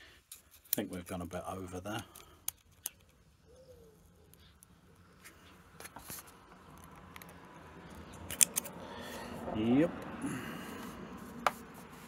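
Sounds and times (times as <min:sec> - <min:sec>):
small metal clicks and scrapes: 0:00.2 - 0:03.3, 0:04.0 - 0:08.8.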